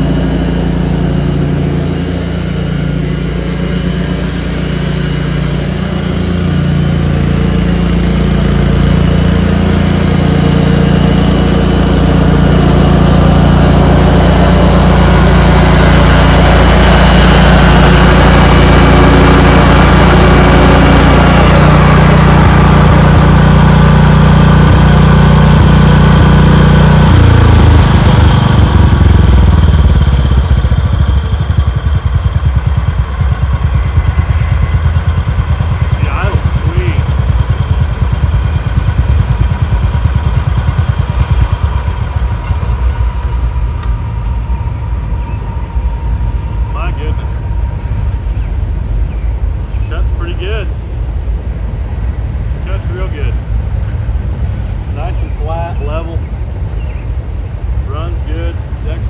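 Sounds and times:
lawn tractor engine mowing: 0.0s - 44.0s.

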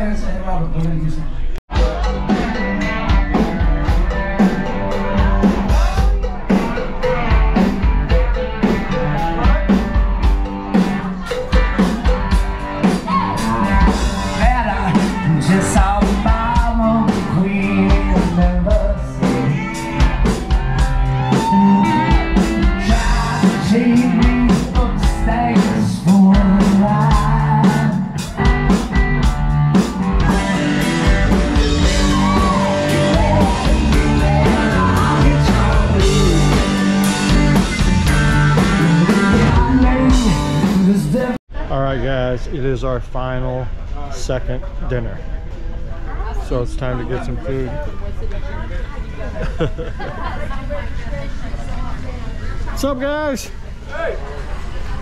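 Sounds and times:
drum kit beat: 1.7s - 41.4s
electric guitars: 1.7s - 41.4s
singer: 10.8s - 28.6s, 31.6s - 37.5s, 38.5s - 41.4s.

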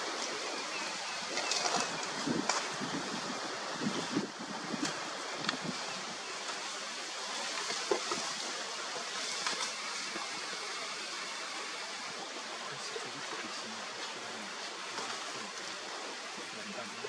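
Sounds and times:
wind hissing: 0.0s - 17.0s
faint snaps and crackles: 4.8s - 5.7s, 7.4s - 9.8s.

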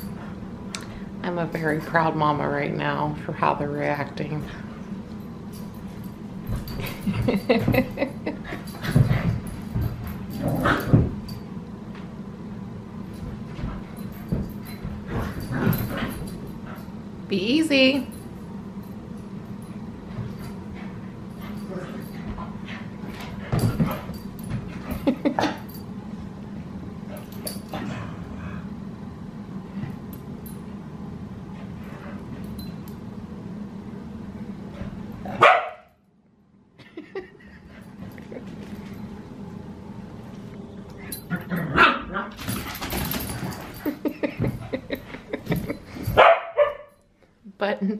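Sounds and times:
dogs vocalising while play-fighting: 8.4s - 11.1s.

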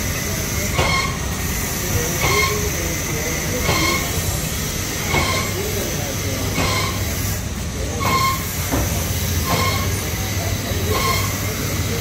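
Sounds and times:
printing machine humming: 0.0s - 12.0s
roller squeak: 8.0s - 8.5s, 9.4s - 10.0s, 10.8s - 11.4s.

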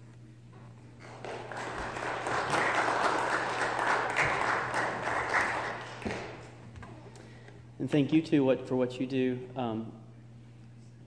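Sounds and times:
congregation applauding: 1.0s - 6.6s.

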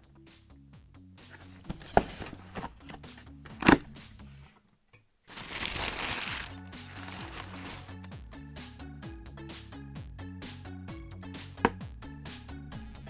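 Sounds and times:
tissue paper rustling: 5.3s - 8.1s.

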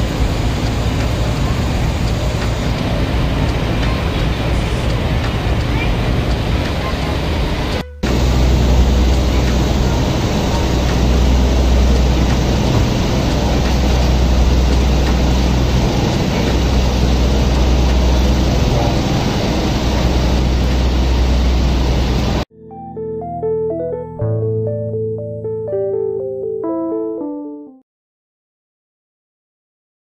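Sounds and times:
wind and water rushing: 0.0s - 22.4s
ferry engine droning: 0.0s - 22.5s.

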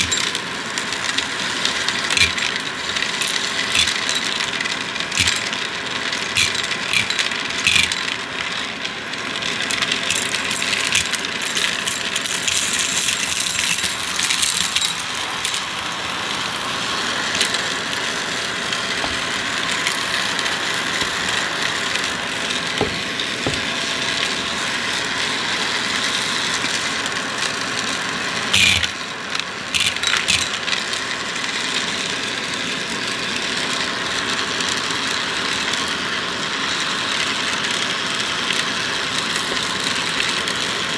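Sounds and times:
debris crackling and rattling: 0.0s - 16.4s
vacuum cleaner running: 0.0s - 40.9s.

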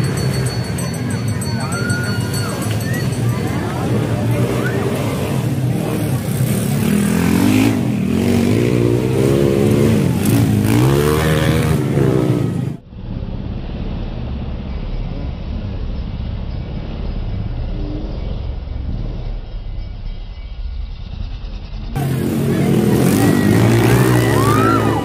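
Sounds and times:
dirt bike engines revving: 0.0s - 12.8s, 21.2s - 25.0s
distant motorcycle engines droning: 0.0s - 25.0s.

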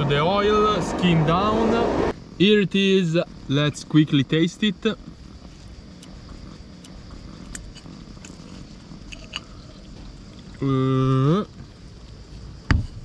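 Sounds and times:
steady background noise: 0.0s - 13.0s
man humming mmm of approval: 10.6s - 11.5s.

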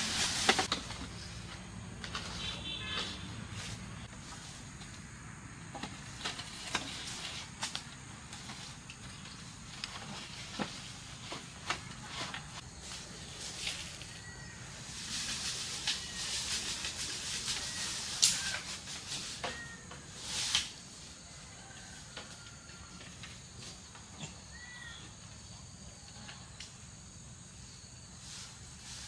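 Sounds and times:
footsteps in dry leaves: 0.0s - 1.4s, 12.0s - 19.4s.

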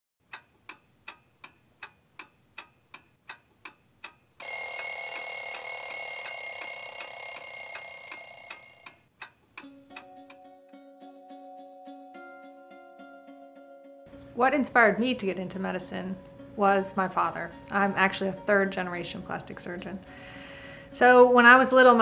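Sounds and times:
clock ticking: 0.3s - 9.3s
alarm clock ringing: 4.4s - 9.0s.

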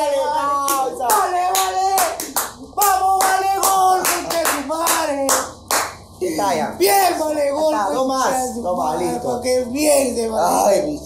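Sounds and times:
rhythmic hand clapping: 0.5s - 6.1s.

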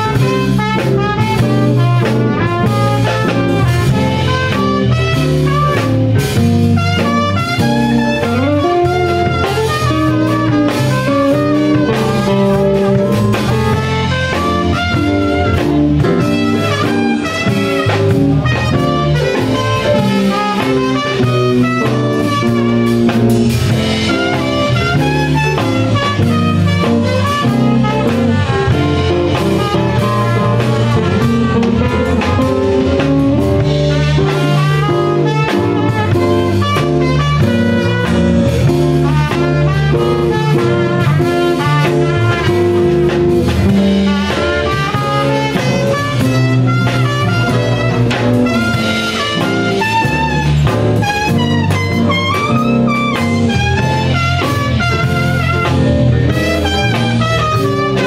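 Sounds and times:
drum kit: 0.0s - 58.0s
plucked electric string instrument: 0.0s - 58.0s
trumpet melody: 0.0s - 58.0s.

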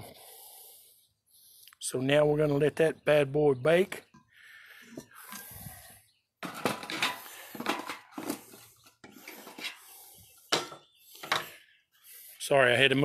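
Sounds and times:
metal cookware clanking: 6.4s - 8.4s, 10.5s - 11.6s.

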